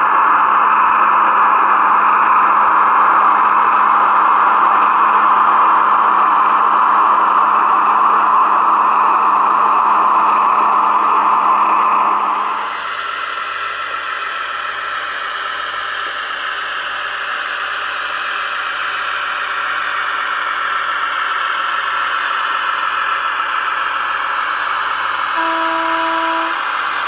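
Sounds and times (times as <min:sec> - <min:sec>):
model locomotive engine whir: 0:00.0 - 0:27.0
horn signal tone: 0:25.4 - 0:26.7.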